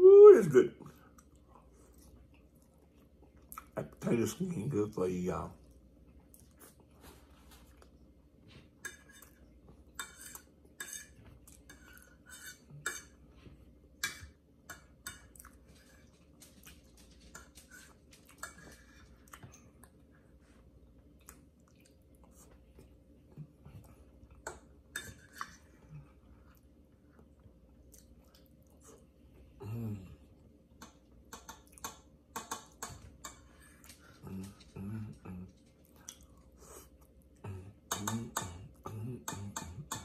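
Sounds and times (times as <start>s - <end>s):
faint steady hum: 0.0s - 40.0s
chewing: 0.9s - 4.0s, 5.6s - 13.2s, 14.0s - 40.0s
fork scraping on plate: 8.8s - 13.2s, 24.9s - 25.7s.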